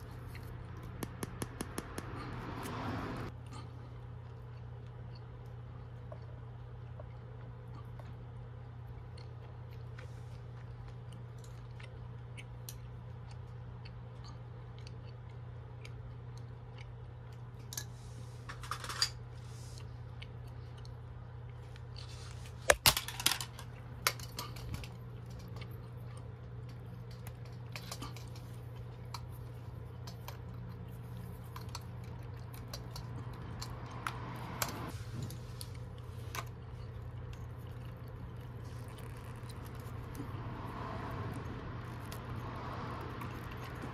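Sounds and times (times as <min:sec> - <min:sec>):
steady low hum: 0:00.0 - 0:43.9
wires and pliers clicking and rattling: 0:18.5 - 0:19.2, 0:22.7 - 0:25.7.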